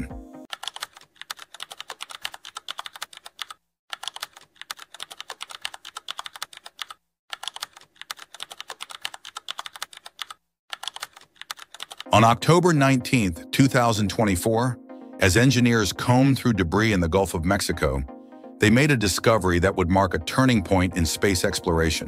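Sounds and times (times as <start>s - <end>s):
computer keyboard typing: 0.5s - 12.2s.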